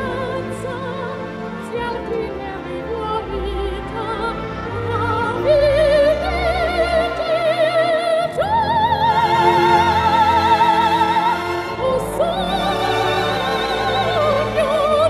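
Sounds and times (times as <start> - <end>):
operatic voice singing: 0.0 - 15.0
orchestral accompaniment: 0.0 - 15.0.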